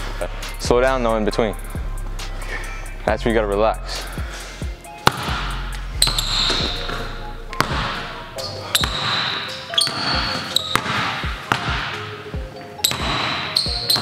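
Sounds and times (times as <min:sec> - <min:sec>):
basketball bouncing on hardwood: 0:05.0 - 0:05.4, 0:07.6 - 0:08.0, 0:08.8 - 0:09.3, 0:10.7 - 0:11.9, 0:12.9 - 0:14.0.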